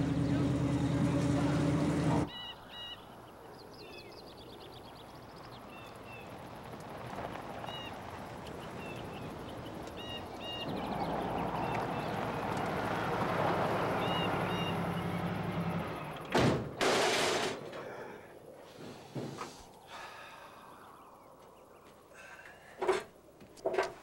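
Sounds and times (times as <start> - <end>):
van engine approaching: 0.0 - 2.3, 4.6 - 16.3
birds chirping: 0.0 - 16.4, 17.8 - 22.6
tyres on dirt road: 0.0 - 24.0.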